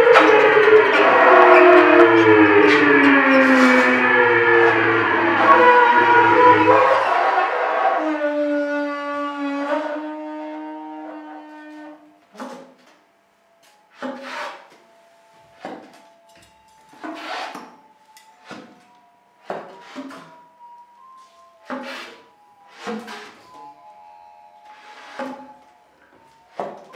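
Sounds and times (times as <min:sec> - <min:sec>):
short noisy accents: 0:00.0 - 0:08.4
faint held high tone: 0:00.0 - 0:09.0, 0:14.7 - 0:26.9
sustained pitched drone: 0:00.0 - 0:10.3, 0:15.0 - 0:26.9.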